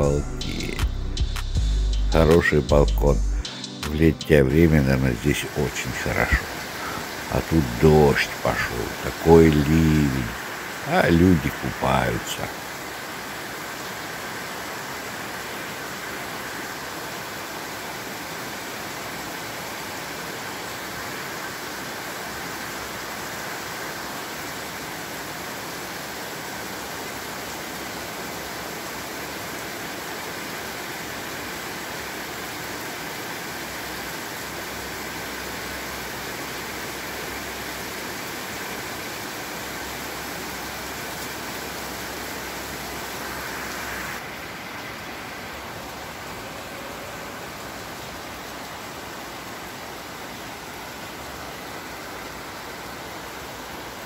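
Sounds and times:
heavy rain pouring: 0.0s - 54.0s.

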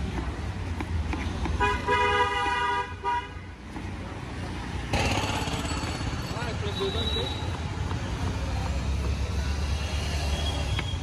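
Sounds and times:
traffic rumble: 0.0s - 11.0s
vehicle horn honking: 1.6s - 3.4s.

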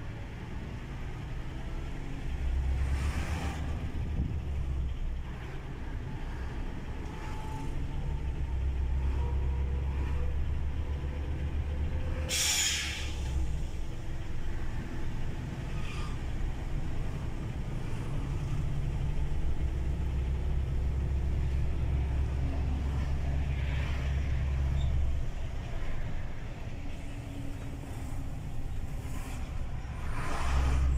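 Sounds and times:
truck diesel engine rumbling: 0.0s - 30.9s
air brakes hissing: 12.2s - 13.9s.

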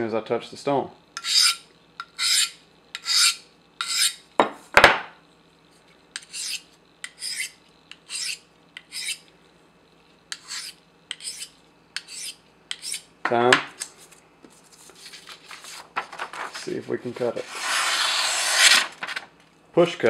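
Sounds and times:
knife scraping on sharpening stone: 1.2s - 4.2s, 6.2s - 9.2s, 10.3s - 13.1s
sharpening stones knocking: 10.3s - 13.0s.

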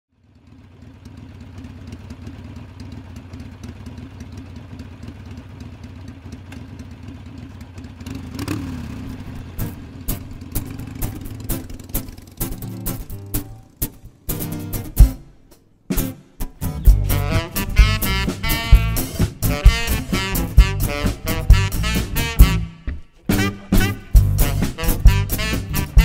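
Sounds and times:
engine idling: 0.1s - 26.0s
engine revving: 8.0s - 15.1s, 16.6s - 26.0s.

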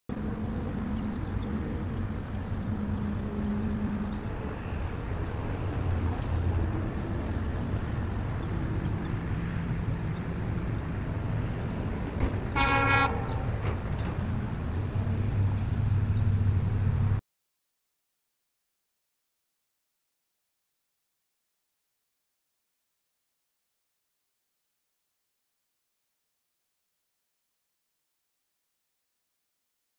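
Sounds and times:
diesel locomotive engine drone: 0.1s - 17.2s
locomotive horn blast: 12.5s - 13.5s.

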